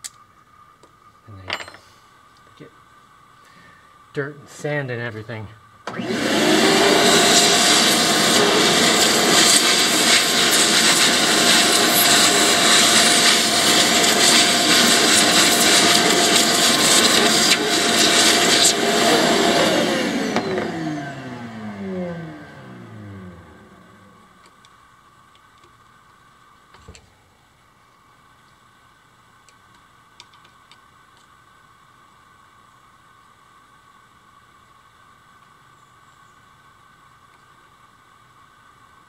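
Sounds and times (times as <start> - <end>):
vacuum cleaner sucking dirt: 5.9 - 24.3
motor winding down whine: 5.9 - 24.5.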